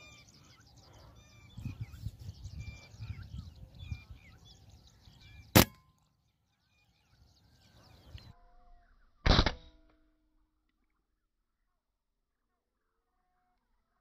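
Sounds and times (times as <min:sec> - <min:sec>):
birds chirping faintly: 0:00.0 - 0:09.2
air rifle firing: 0:05.6 - 0:05.8, 0:09.3 - 0:09.7.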